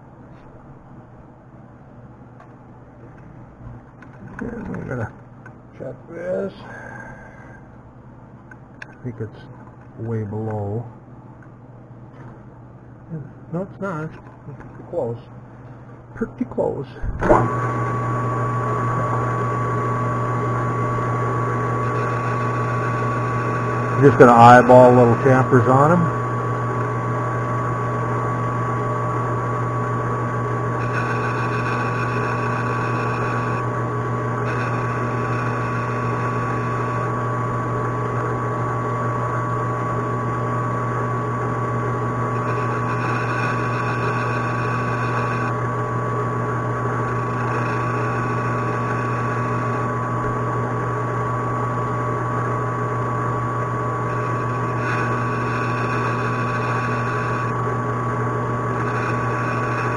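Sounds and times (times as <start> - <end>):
lathe motor hum: 17.0 - 59.9
high ringing of cutting: 19.0 - 29.1, 30.6 - 33.8, 34.4 - 37.1, 42.2 - 45.6, 47.0 - 49.9, 54.0 - 57.6, 58.7 - 59.9.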